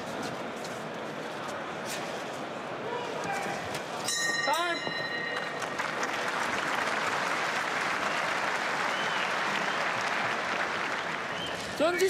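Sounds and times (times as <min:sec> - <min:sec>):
arena crowd applauding: 0:05.2 - 0:12.0.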